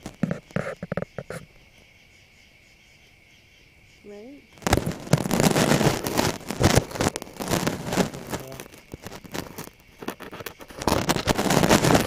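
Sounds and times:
handling noise crackling and clicks: 6.6s - 12.0s.

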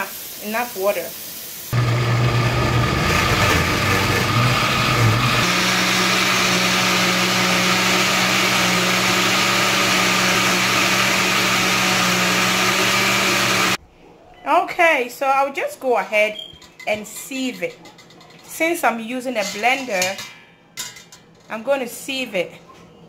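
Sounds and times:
blender motor running: 1.7s - 13.8s.

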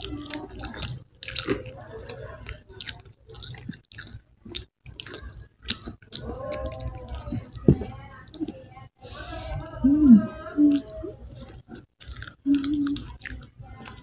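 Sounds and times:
chewing and biting rice ball: 0.0s - 7.7s, 10.7s - 14.0s.

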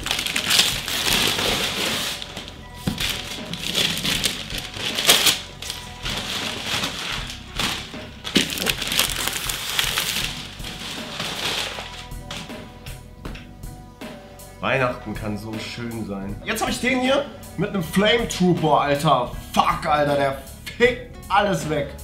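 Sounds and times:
wrapping paper ripping: 0.0s - 12.5s
background music: 0.0s - 22.0s.

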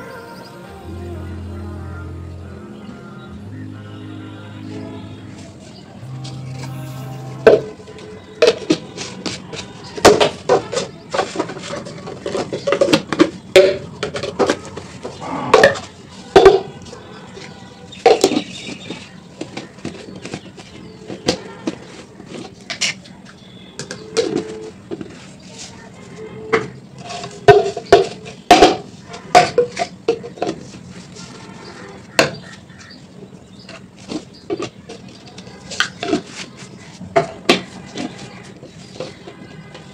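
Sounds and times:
dishes and utensils clattering: 27.0s - 30.8s.

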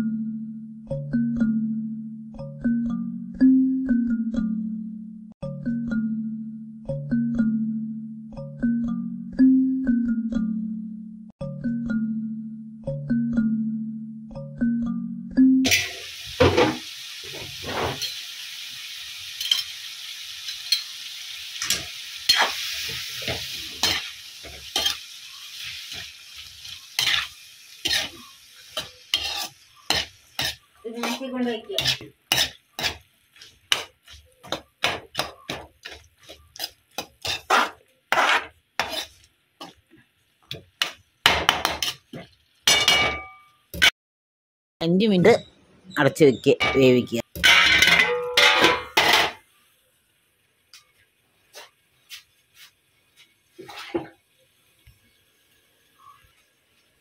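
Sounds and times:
oil sizzling: 15.6s - 43.9s, 46.8s - 57.0s
metal spoon scraping wok: 17.3s - 18.2s, 21.6s - 39.8s, 41.6s - 42.2s.

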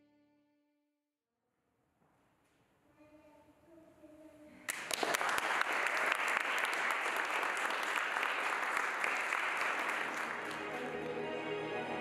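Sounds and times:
audience applauding: 4.7s - 11.7s.

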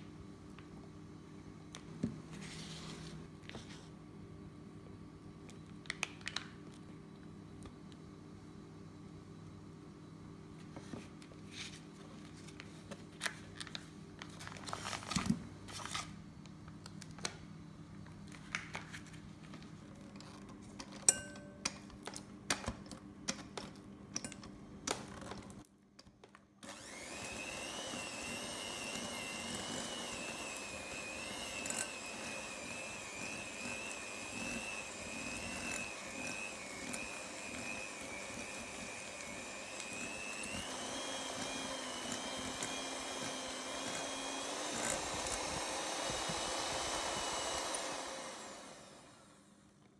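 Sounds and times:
electric hand mixer whining: 26.6s - 49.6s.

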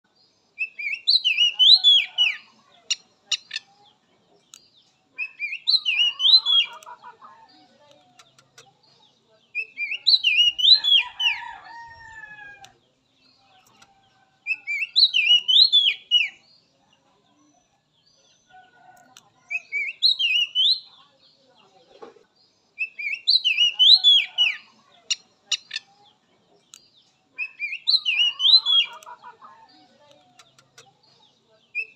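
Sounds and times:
bird singing whistled notes: 0.6s - 2.5s, 5.2s - 6.8s, 9.6s - 11.4s, 14.5s - 16.4s, 19.5s - 20.9s, 22.8s - 24.7s, 27.4s - 29.0s.

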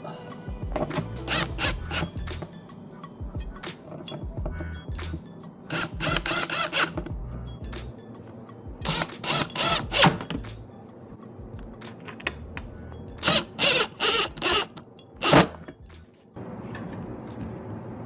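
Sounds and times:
cordless drill bursts: 5.7s - 7.0s, 8.9s - 10.2s, 13.2s - 15.6s.

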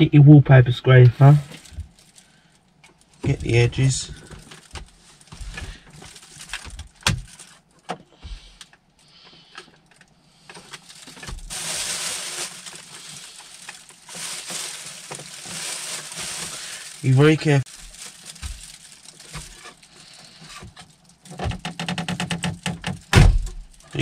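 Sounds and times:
plastic bin liner rustling: 3.1s - 7.6s, 10.6s - 21.4s.

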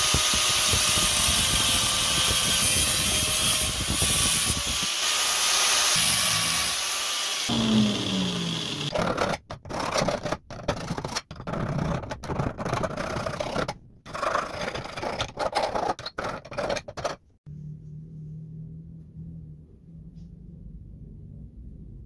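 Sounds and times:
file rasping on metal: 0.0s - 10.2s
angle grinder winding down: 2.8s - 9.0s.

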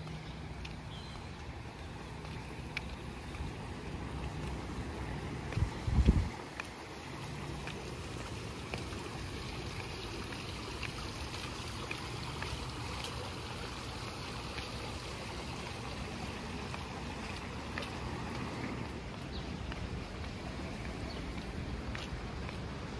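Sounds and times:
faint light ticks: 0.0s - 3.6s, 4.2s - 6.8s
flowing water rushing: 0.0s - 22.9s.

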